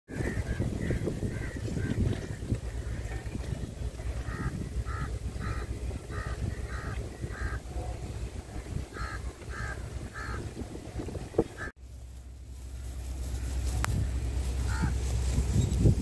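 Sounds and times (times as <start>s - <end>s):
crows cawing: 0.1s - 3.1s, 4.2s - 7.6s, 8.9s - 10.4s, 14.6s - 15.0s
wind rumble on microphone: 0.1s - 16.0s.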